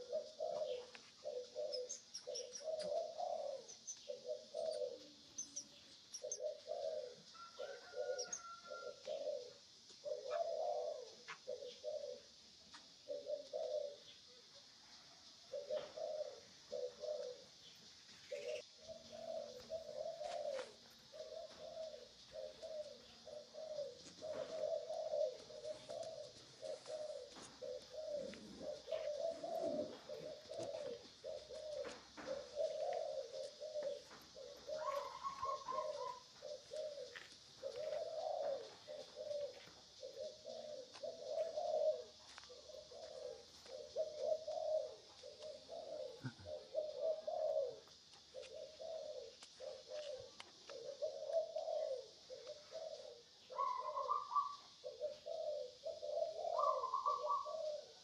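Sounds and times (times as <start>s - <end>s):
bird calling in low notes: 0.0s - 12.4s, 18.3s - 58.0s.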